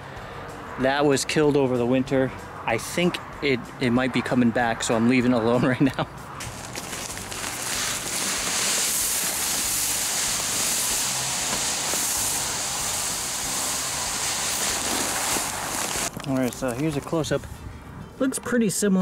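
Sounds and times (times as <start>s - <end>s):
granules pouring with a hiss: 6.4s - 16.8s.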